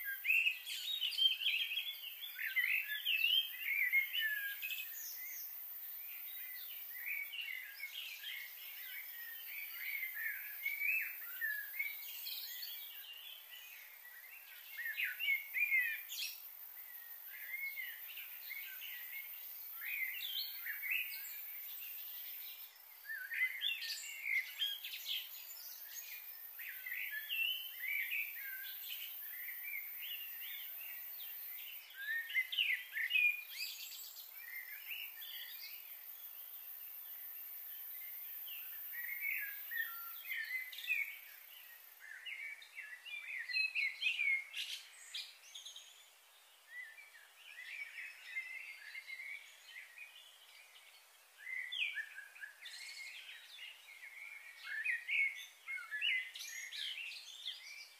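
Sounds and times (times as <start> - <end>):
faint high hiss: 0.0 - 57.9
songbirds chirping: 0.0 - 57.9.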